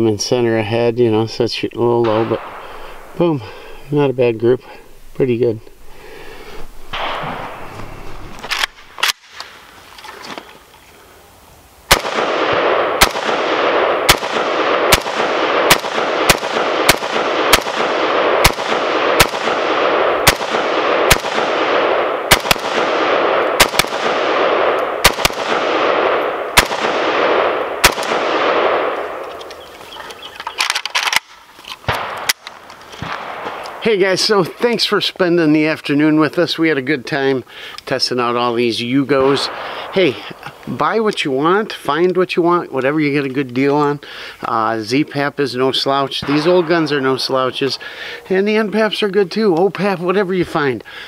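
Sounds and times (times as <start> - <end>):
rifle shots: 2.0 - 3.7, 6.9 - 9.6, 11.9 - 29.7, 30.5 - 33.8, 45.9 - 48.3
sharp rifle clicks: 8.4 - 10.4, 11.9 - 33.8.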